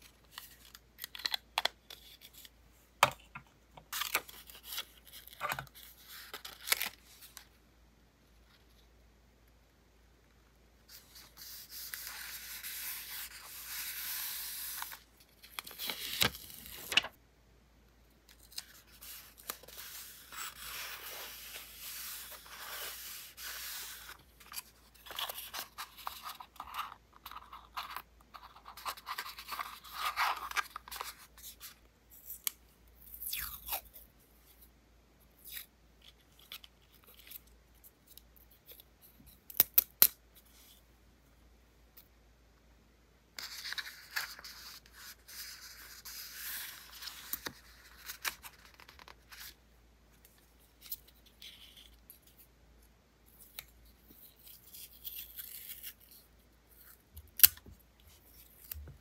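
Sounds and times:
paper rustling and rubbing: 15.6s - 17.1s, 18.7s - 31.6s.

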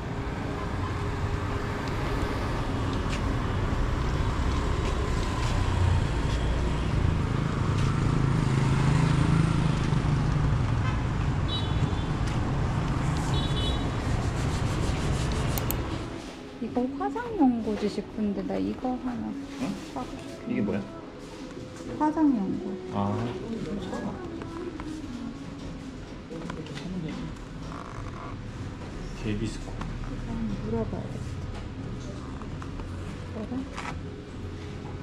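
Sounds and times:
motorbike engine passing: 0.0s - 11.5s
street traffic noise: 0.0s - 35.0s.

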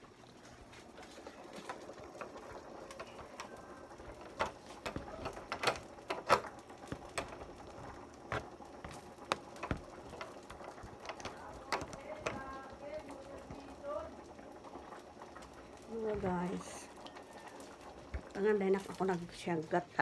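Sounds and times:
light clicks and knocks: 2.9s - 13.7s.

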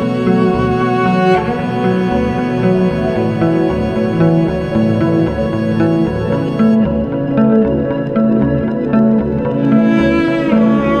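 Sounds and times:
plucked and bowed strings: 0.0s - 11.0s.

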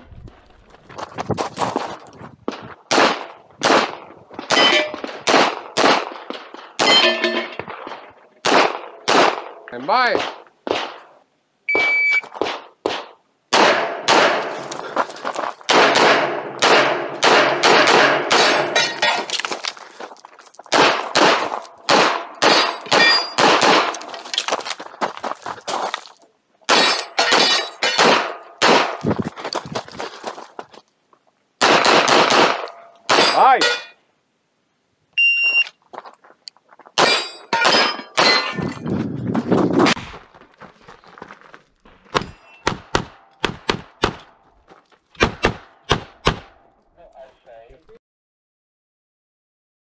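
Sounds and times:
pistol shots: 2.9s - 6.1s, 8.4s - 9.6s, 10.2s - 11.1s, 11.8s - 14.6s, 15.7s - 19.0s, 20.7s - 24.1s, 26.7s - 29.0s, 31.6s - 33.5s
steel targets clanging: 4.5s - 5.0s, 6.7s - 7.7s, 15.8s - 19.4s, 21.0s - 24.1s, 26.7s - 28.6s, 32.6s - 34.0s, 37.0s - 38.8s, 42.1s - 43.4s
shot timer beep: 11.7s - 12.3s, 35.2s - 35.7s.

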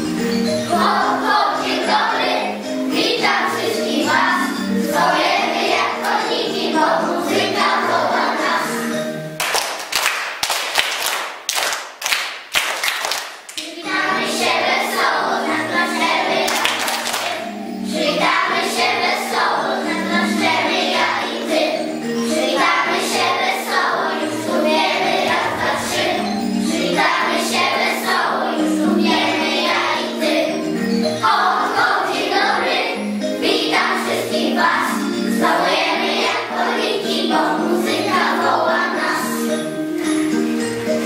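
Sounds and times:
children singing: 0.0s - 9.2s, 13.6s - 41.0s
backing music: 0.0s - 11.2s, 13.0s - 41.0s
children clapping in time: 9.4s - 14.0s, 16.4s - 17.6s.

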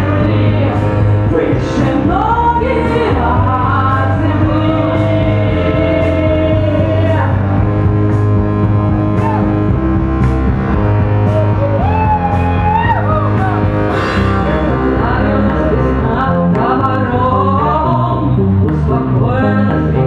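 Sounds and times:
rock band playing loudly: 4.9s - 16.0s.

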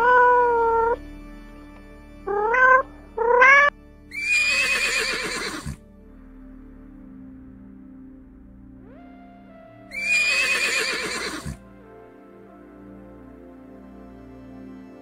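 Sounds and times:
soft background music: 0.0s - 15.0s
horse whinnying: 3.4s - 5.8s, 9.9s - 11.6s.

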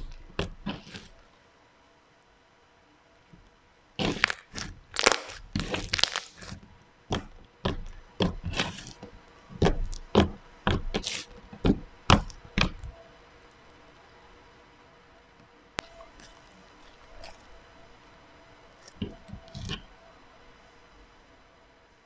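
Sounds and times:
slime popping and crackling: 0.0s - 1.1s, 4.0s - 9.0s.

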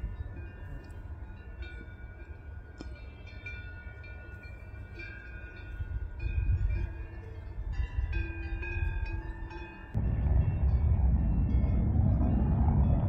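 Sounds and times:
cowbells clanging: 0.0s - 10.0s
low wind rumble: 0.0s - 13.0s.

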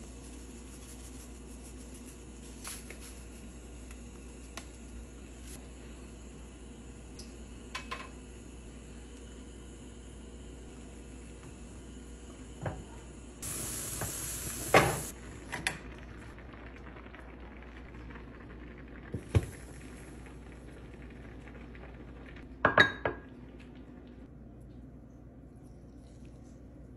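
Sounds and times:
hiss: 13.4s - 15.2s.

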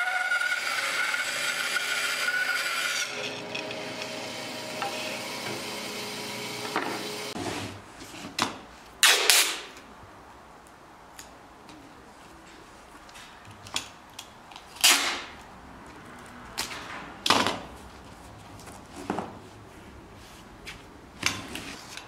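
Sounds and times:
bandsaw cutting wood: 0.0s - 7.4s.

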